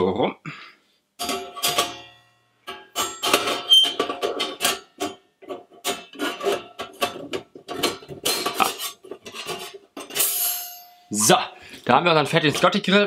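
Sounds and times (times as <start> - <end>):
metal grill plates clattering: 1.2 - 10.7.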